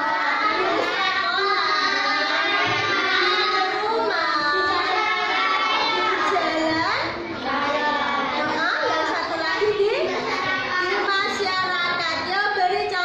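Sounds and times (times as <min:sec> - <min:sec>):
children and woman singing: 0:00.0 - 0:10.0.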